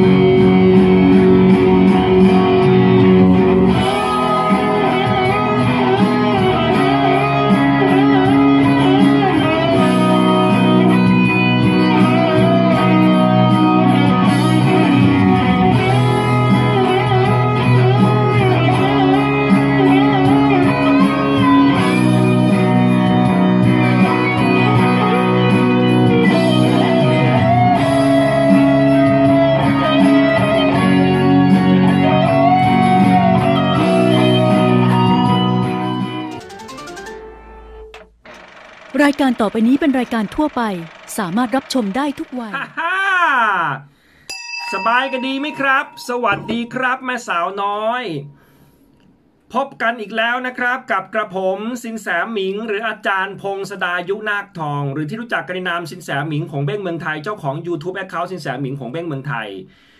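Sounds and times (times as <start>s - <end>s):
electric guitar lead melody: 0.0s - 38.2s
backing track: 0.0s - 38.3s, 39.0s - 42.5s, 44.6s - 47.3s.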